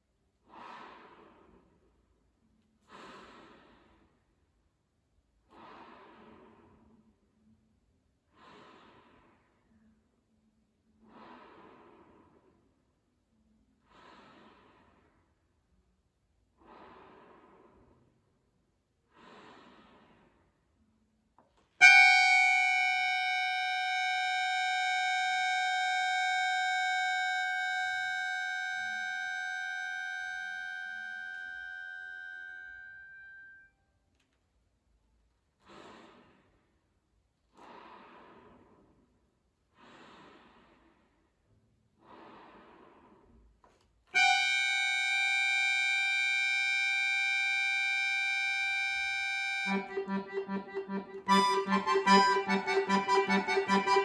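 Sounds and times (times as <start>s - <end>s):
accordion high note held: 21.8s - 33.6s, 44.2s - 54.0s.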